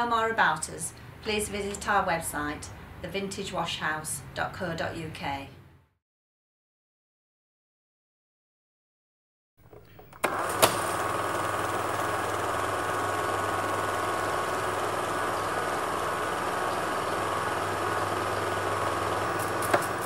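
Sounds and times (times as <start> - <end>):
small motor humming: 10.0 - 20.0.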